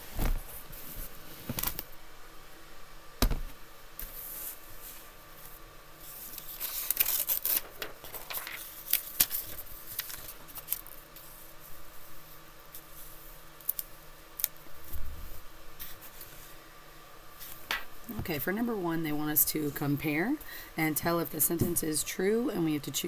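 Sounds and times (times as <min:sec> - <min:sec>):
paper rustling: 0:06.0 - 0:11.4.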